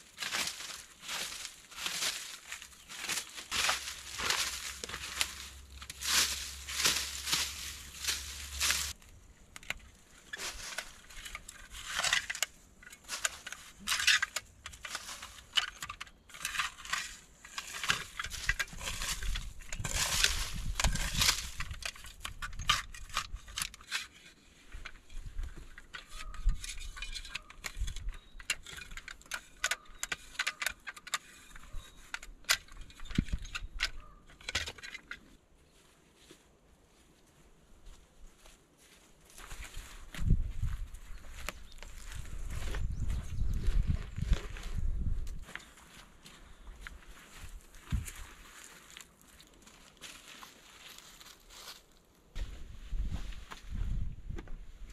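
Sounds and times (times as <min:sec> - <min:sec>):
shovel scraping stony soil: 0:00.0 - 0:09.0, 0:10.2 - 0:34.8.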